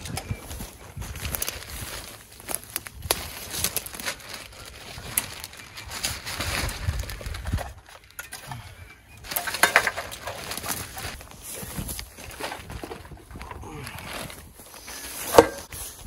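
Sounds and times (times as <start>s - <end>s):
footsteps crunching on twigs: 0.0s - 8.2s
plastic bag rustling: 0.0s - 8.4s, 9.2s - 16.0s.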